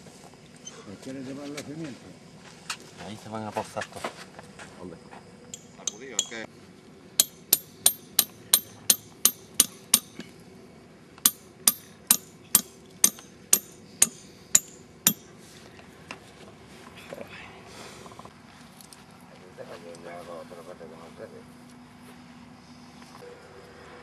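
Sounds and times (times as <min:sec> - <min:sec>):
hammer striking stake: 0:05.5 - 0:06.4, 0:07.2 - 0:10.3, 0:11.2 - 0:15.3.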